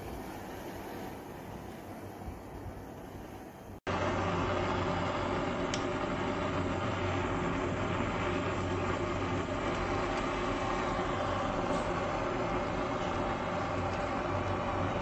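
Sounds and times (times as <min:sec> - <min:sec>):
blowtorch hissing: 0:00.0 - 0:15.0.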